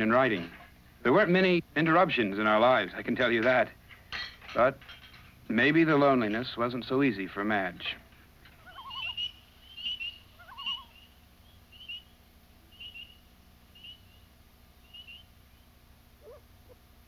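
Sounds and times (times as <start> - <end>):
warbled whistle call: 8.7 - 13.2, 13.8 - 16.4.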